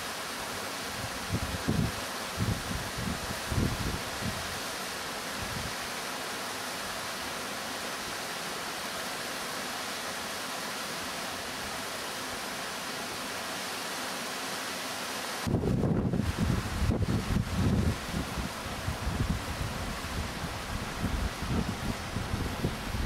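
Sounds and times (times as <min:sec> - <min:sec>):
small waterfall rushing: 0:00.0 - 0:23.0
wind buffeting microphone: 0:15.5 - 0:23.0.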